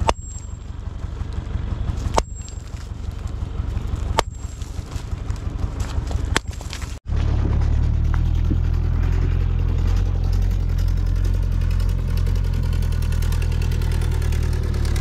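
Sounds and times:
axe striking stone slab: 0.0s - 0.6s, 2.0s - 8.6s
steady low rumble: 0.0s - 12.7s.

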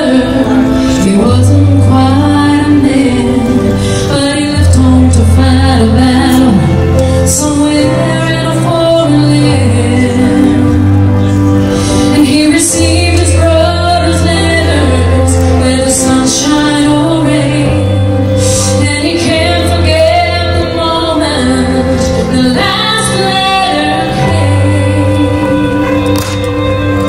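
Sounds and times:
accompaniment with held bass notes: 0.0s - 27.0s
woman singing a slow ballad: 0.0s - 27.0s.

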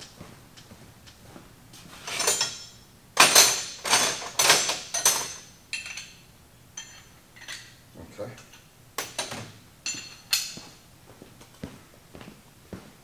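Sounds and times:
metal hand tools clanking: 2.1s - 6.2s.

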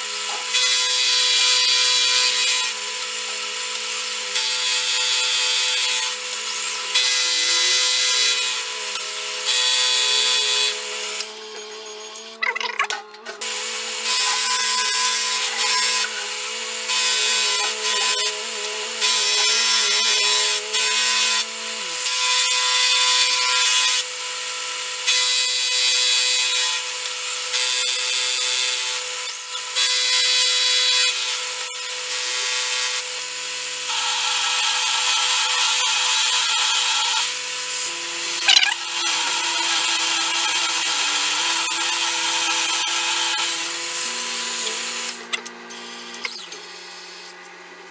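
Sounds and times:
spindle motor whine: 37.8s - 47.9s.

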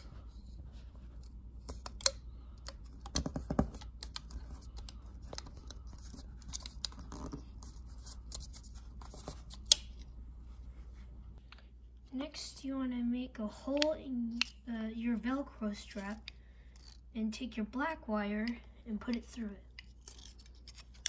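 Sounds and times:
tape and wire clicks and crinkles: 0.0s - 10.1s
low steady hum: 0.0s - 21.0s.

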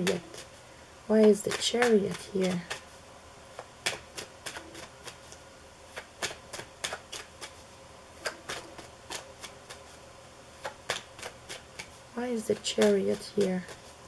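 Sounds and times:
cards shuffling: 3.5s - 10.0s, 10.6s - 14.0s.

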